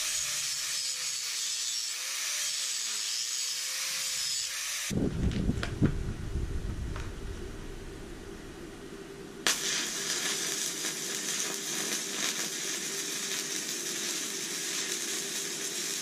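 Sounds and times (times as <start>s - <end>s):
welding arc crackling sizzle: 0.0s - 5.7s, 9.4s - 16.0s.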